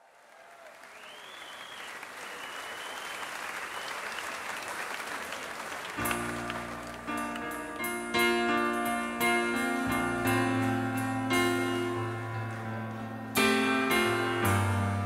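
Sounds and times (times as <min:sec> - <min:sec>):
crowd applause: 0:00.0 - 0:07.9
live song music: 0:05.5 - 0:15.0.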